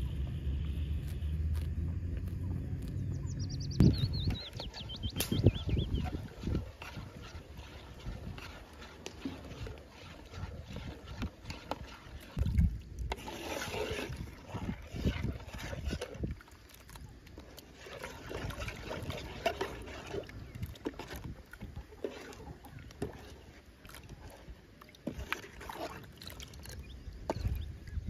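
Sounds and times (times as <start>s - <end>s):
milk sloshing in a pot: 5.7s - 27.5s.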